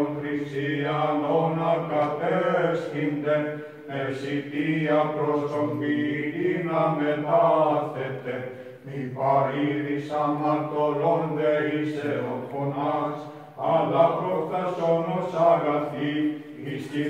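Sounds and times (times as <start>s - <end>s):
man chanting: 0.0s - 17.0s.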